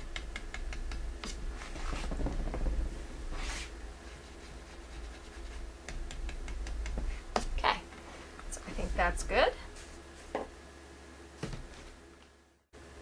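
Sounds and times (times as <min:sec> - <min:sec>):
steady low hum: 0:00.0 - 0:13.0
scratchy brush rubbing strokes: 0:01.2 - 0:07.4
paintbrush tapping on wood: 0:05.8 - 0:07.5.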